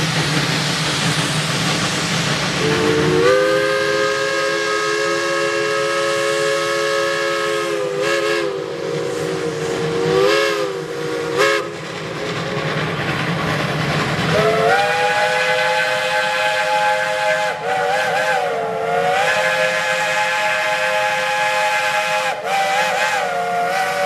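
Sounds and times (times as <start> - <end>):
steam hissing: 0.0 - 24.0
steam locomotive chime whistle: 2.6 - 11.8, 14.3 - 24.0.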